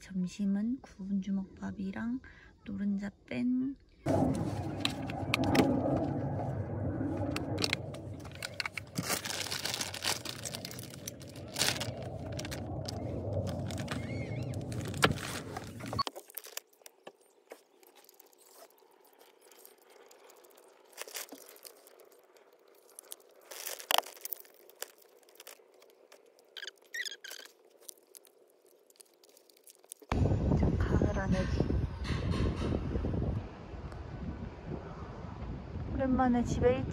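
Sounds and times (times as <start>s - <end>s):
steady low hum: 3.5s - 16.0s
plastic bag crinkling: 7.2s - 30.1s
eggshell cracking: 7.4s - 15.0s, 16.0s - 30.1s.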